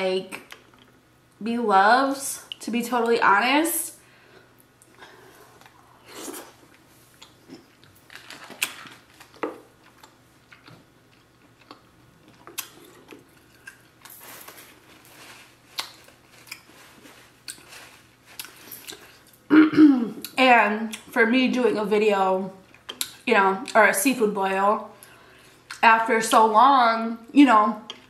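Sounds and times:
food crunching: 0:04.7 - 0:19.5, 0:22.6 - 0:23.2
person chewing and biting: 0:04.9 - 0:19.5.

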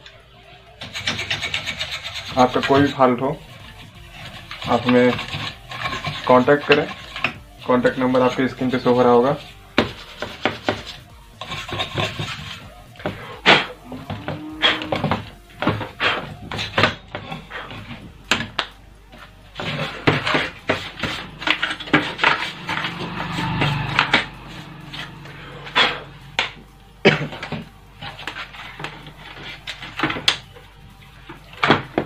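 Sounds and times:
scraping: 0:19.2 - 0:30.4.

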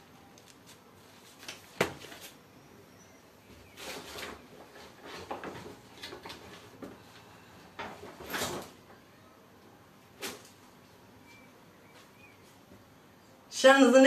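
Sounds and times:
objects rustling and knocking: 0:03.5 - 0:09.0.

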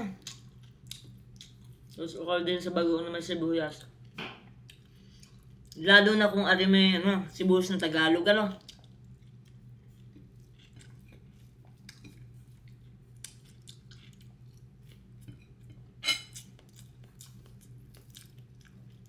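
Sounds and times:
steady low hum: 0:00.0 - 0:19.0
chewing: 0:00.2 - 0:02.1, 0:03.7 - 0:05.8, 0:08.5 - 0:19.0.

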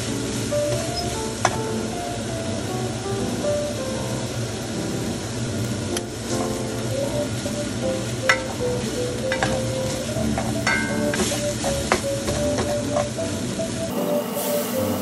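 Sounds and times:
food sizzling in a pan: 0:00.0 - 0:15.0
spatula scraping and knocking pan: 0:09.3 - 0:13.1.

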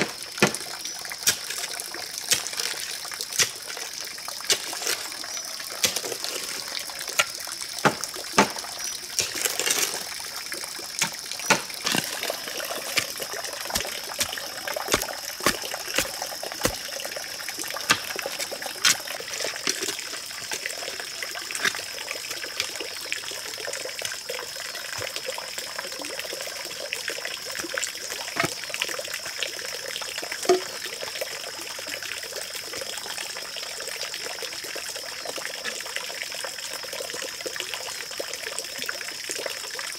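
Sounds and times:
pole thudding into soil: 0:07.2 - 0:10.0, 0:11.0 - 0:16.8.

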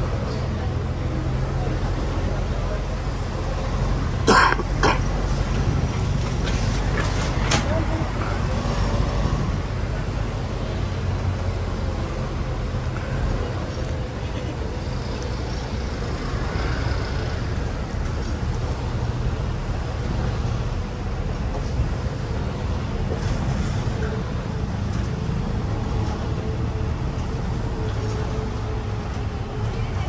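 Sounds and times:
bus engine rumble: 0:00.0 - 0:30.0
passing traffic: 0:00.0 - 0:30.0
road noise: 0:00.0 - 0:30.0.

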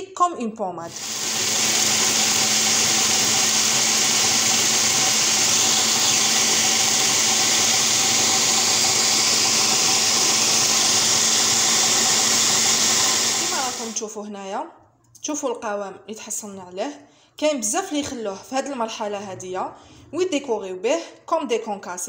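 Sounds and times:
food processor grinding nuts: 0:00.9 - 0:14.0.

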